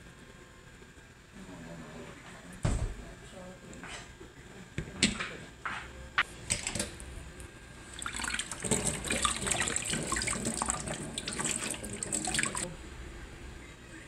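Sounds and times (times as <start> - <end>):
water splashing into metal sink: 6.5 - 6.9, 7.9 - 12.7.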